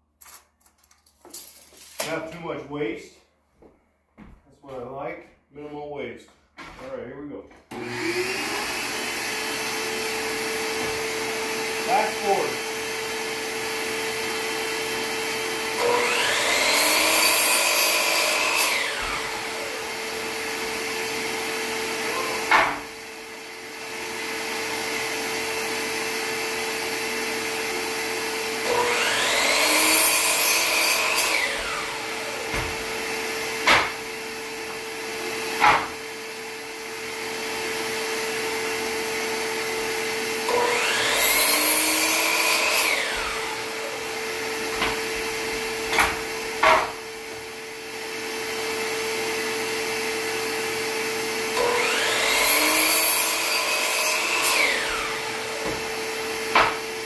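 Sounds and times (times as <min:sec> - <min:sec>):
miter saw cutting wood: 0:07.7 - 0:57.0
shop vacuum humming: 0:07.7 - 0:57.0
sharp knocks: 0:33.6 - 0:34.0, 0:35.6 - 0:36.0, 0:56.5 - 0:56.8.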